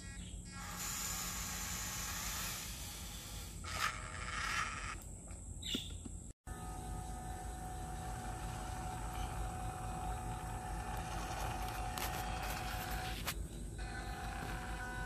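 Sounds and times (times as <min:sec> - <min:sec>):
steady outdoor hiss: 0:00.2 - 0:15.0
electric toy truck motor whine: 0:00.4 - 0:05.0, 0:06.5 - 0:15.0.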